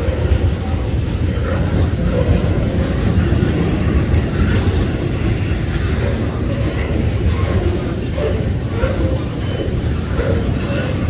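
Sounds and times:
freight train wheels rumbling: 0:00.0 - 0:11.0.

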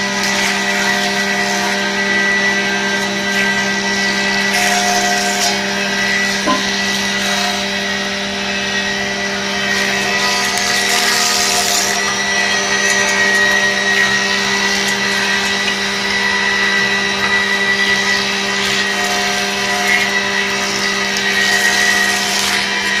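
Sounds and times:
sanding machine motor whine: 0:00.0 - 0:23.0
wood grinding hiss: 0:09.2 - 0:23.0.

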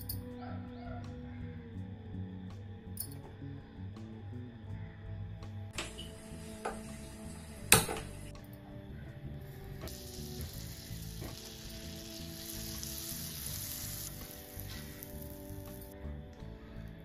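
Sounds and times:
butter sizzling in a pan: 0:09.9 - 0:15.9.

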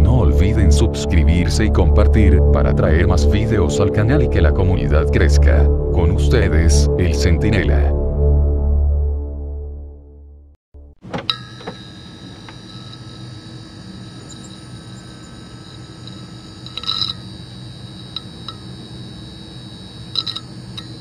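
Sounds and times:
neon sign buzzing: 0:11.0 - 0:21.0
neon sign crackling clicks: 0:11.1 - 0:21.0.

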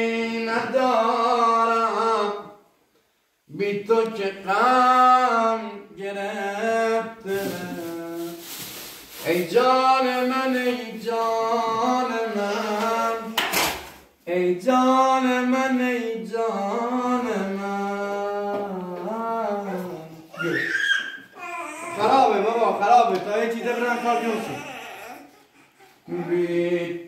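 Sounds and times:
person singing long held notes: 0:09.2 - 0:13.4.

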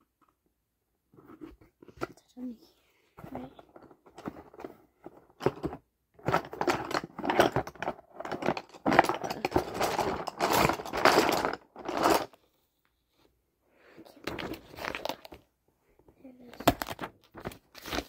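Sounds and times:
rustling and clicking handling noise: 0:03.2 - 0:13.4, 0:14.0 - 0:18.0.

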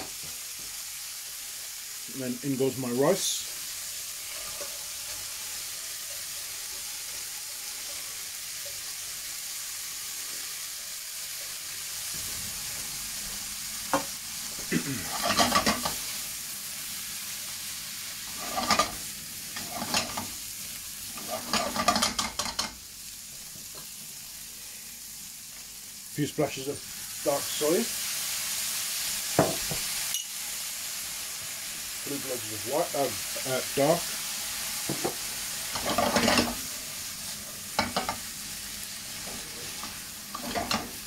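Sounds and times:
fried rice sizzling in a pan: 0:00.0 - 0:41.0
spatula scraping a pan: 0:04.1 - 0:05.4, 0:15.0 - 0:16.1, 0:18.2 - 0:20.4, 0:21.1 - 0:22.7, 0:35.7 - 0:36.7, 0:39.2 - 0:41.0.

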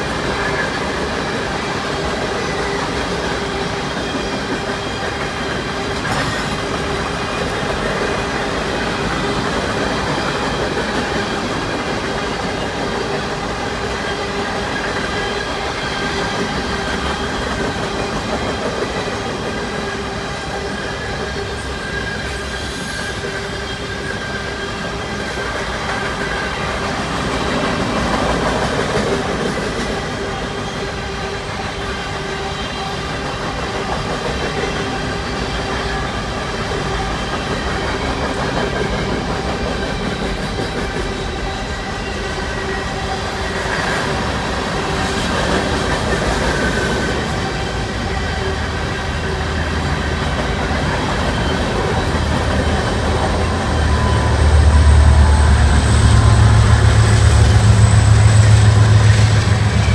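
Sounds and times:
freight cars rumbling on rails: 0:00.0 - 0:59.9
diesel locomotive low rumble: 0:44.1 - 0:59.9.

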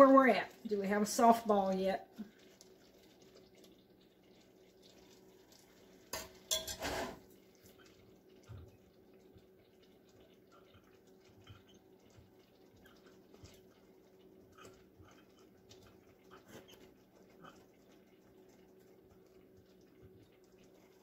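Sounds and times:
faint steady hum: 0:00.0 - 0:21.0
metal spoon clinking on saucepan: 0:06.2 - 0:07.0.

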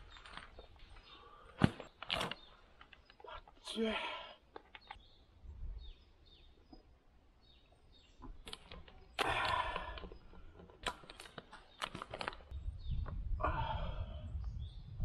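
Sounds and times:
loud rustling and crinkling: 0:00.0 - 0:03.2, 0:10.5 - 0:12.5
small clicks and knocks: 0:04.5 - 0:05.0, 0:08.2 - 0:13.2.

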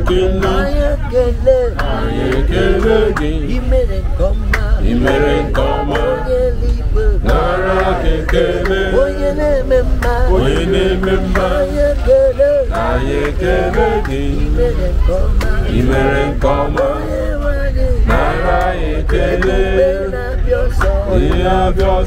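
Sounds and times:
group singing gospel chorus: 0:00.0 - 0:22.0
train rumble: 0:00.0 - 0:22.0.

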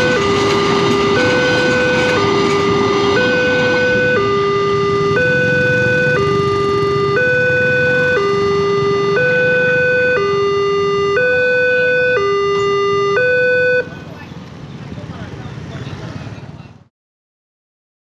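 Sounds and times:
level crossing two-tone alarm: 0:00.0 - 0:13.9.

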